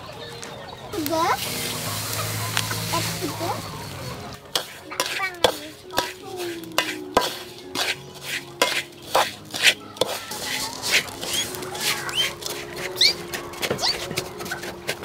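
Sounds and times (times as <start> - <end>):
metal spoon scraping sugar in wok: 1.3 - 15.0.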